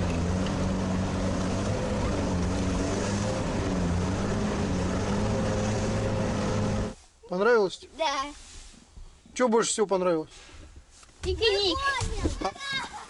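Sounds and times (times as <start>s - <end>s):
diesel engine droning: 0.0s - 7.0s.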